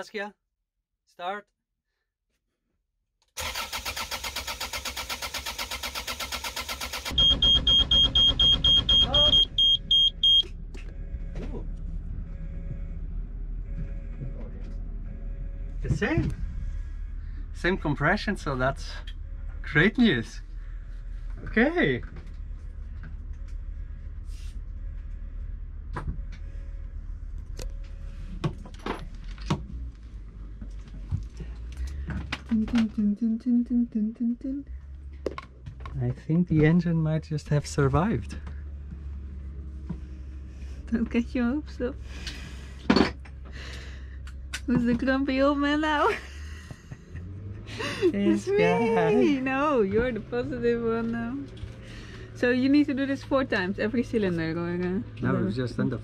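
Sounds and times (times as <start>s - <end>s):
diesel engine cranking: 3.4s - 33.2s
high-pitched alarm beeping: 7.1s - 11.6s.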